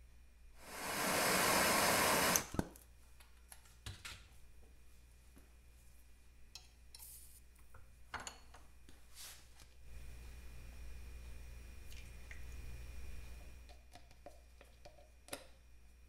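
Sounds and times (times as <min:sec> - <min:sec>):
gas torch hissing: 0:00.6 - 0:02.6.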